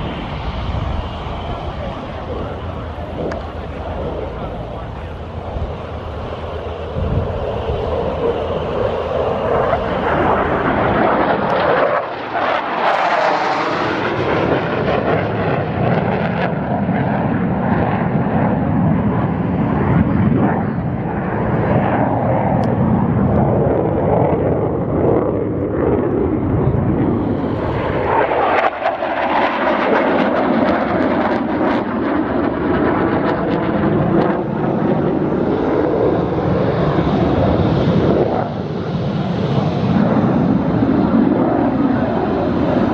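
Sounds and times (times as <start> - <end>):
jet engine roar passing: 0.0 - 42.9.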